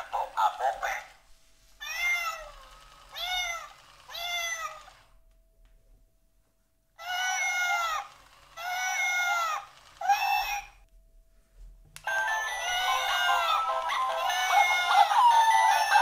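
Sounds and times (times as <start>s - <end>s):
electronic toy kitten meowing: 1.8s - 5.1s, 7.0s - 10.8s, 12.1s - 16.0s.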